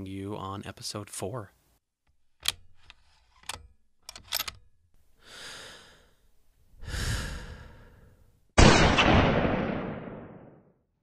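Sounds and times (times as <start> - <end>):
long breaths: 5.2 - 8.4.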